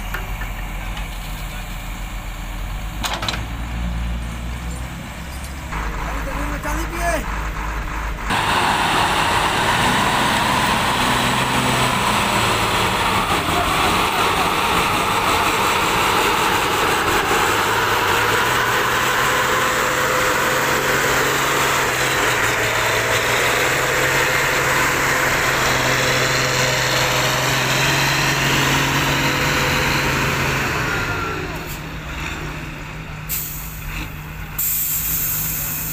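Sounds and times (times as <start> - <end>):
diesel truck engine running: 0.0 - 35.9
dense even hiss: 33.3 - 35.9.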